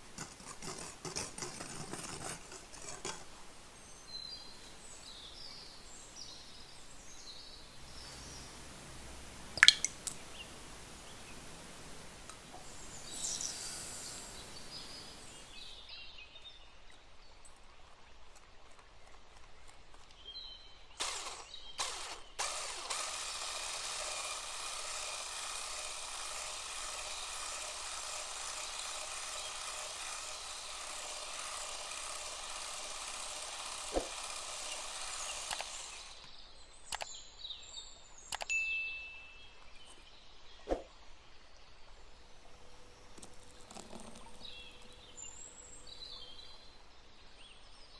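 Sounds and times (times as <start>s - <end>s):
sharp clicks and taps: 9.6s - 10.2s
electric hand mixer running: 13.0s - 15.6s, 21.0s - 36.3s
sugar pouring into glass bowl: 43.1s - 45.0s.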